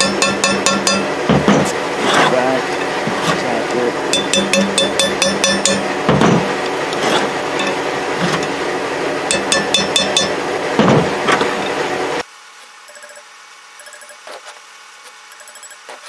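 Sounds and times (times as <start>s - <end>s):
hammer striking steel chisel: 0.0s - 1.7s, 4.1s - 6.3s, 9.3s - 10.4s.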